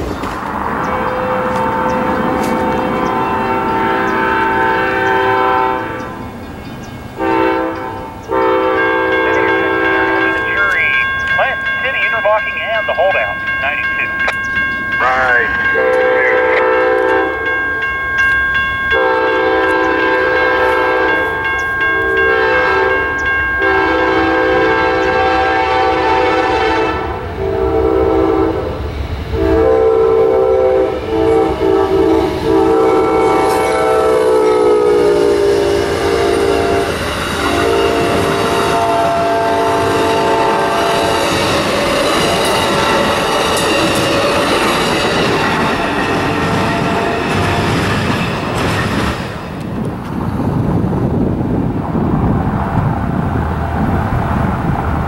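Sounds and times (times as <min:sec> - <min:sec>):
crossing bell ringing: 0:00.0 - 0:25.4, 0:32.2 - 0:49.6
train horn long blasts: 0:00.9 - 0:06.2, 0:07.2 - 0:10.8, 0:15.0 - 0:17.7, 0:18.9 - 0:45.1
train wheel clatter: 0:39.8 - 0:51.7.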